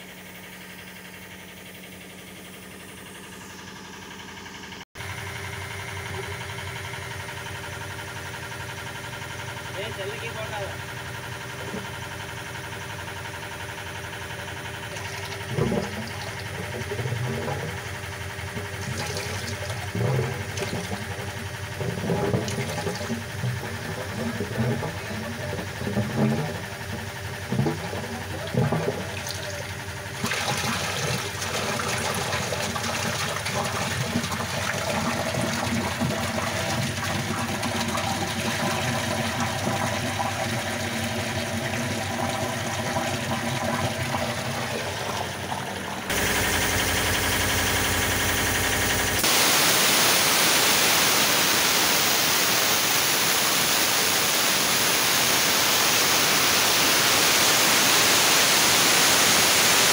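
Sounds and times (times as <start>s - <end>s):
short low hum: 0.0s - 59.9s
water pouring into a tank: 14.4s - 48.9s
loud steady hiss: 49.2s - 59.9s.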